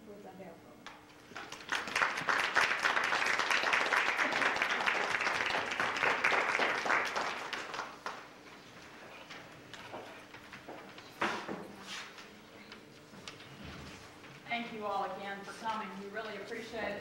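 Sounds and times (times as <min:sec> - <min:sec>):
audience applauding: 0:01.3 - 0:08.3.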